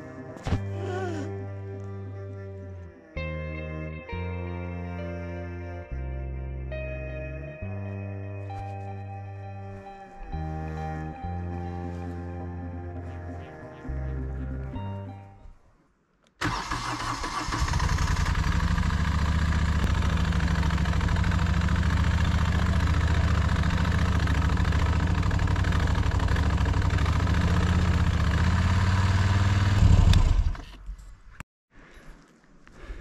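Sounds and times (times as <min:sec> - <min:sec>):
motorcycle engine idling: 0:16.5 - 0:30.6.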